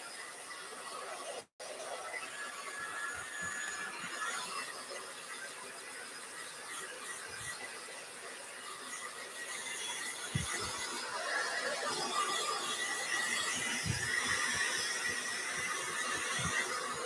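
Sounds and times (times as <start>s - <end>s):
hair dryer running: 6.6s - 17.0s.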